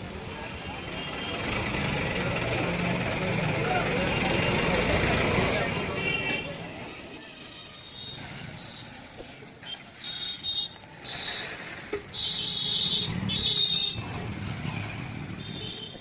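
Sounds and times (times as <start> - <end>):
motor vehicles passing: 0.0 - 6.7, 10.8 - 16.0.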